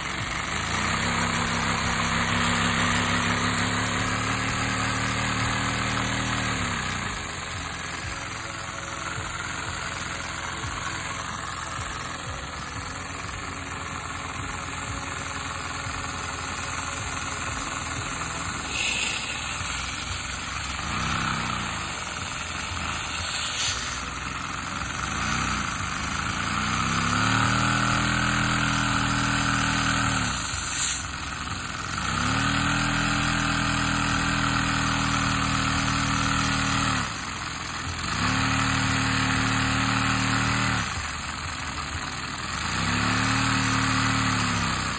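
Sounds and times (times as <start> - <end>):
vacuum cleaner running: 0.0 - 35.4
small engine humming: 0.0 - 44.9.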